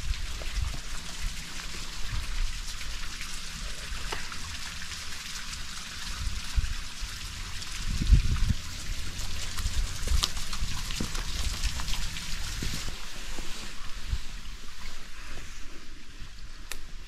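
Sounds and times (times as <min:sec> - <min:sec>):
water hissing: 0:00.0 - 0:16.5.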